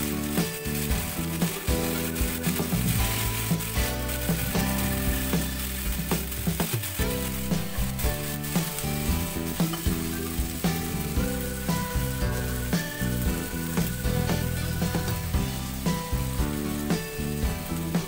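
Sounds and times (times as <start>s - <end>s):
background music: 0.0s - 18.0s
vegetables sizzling in oil: 0.0s - 18.0s.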